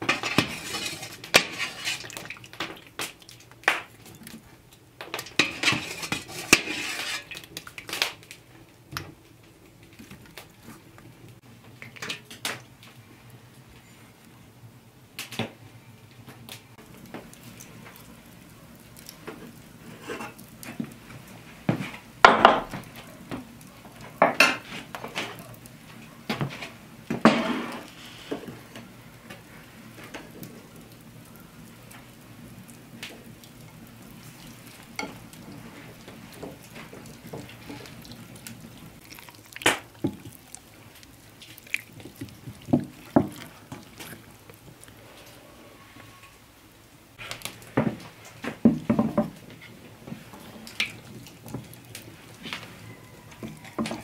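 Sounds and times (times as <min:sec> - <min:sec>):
kitchenware clattering and scraping: 0:00.0 - 0:02.8, 0:05.1 - 0:07.5, 0:19.9 - 0:20.4, 0:24.2 - 0:25.4, 0:26.4 - 0:28.5
utensils clinking on dishes: 0:05.1 - 0:07.4.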